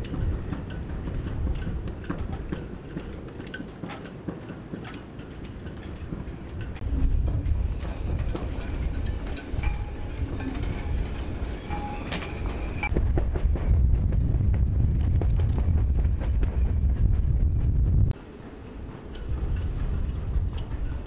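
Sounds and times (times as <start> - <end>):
wind buffeting microphone: 0.0 - 18.2, 18.8 - 21.0.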